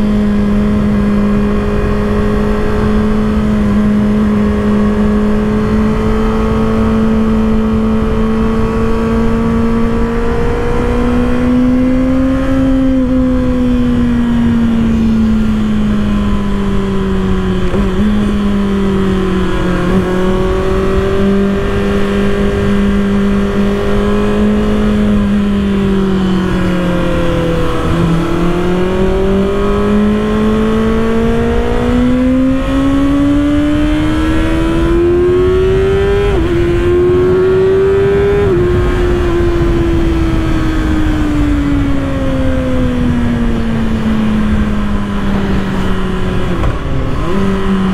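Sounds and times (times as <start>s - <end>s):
motorcycle engine running: 0.0s - 47.9s
wind rush: 0.0s - 47.9s.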